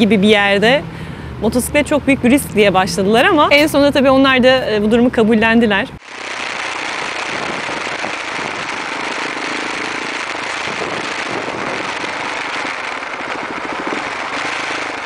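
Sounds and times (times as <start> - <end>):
road noise: 0.0 - 15.0
rushing wind: 5.7 - 15.0.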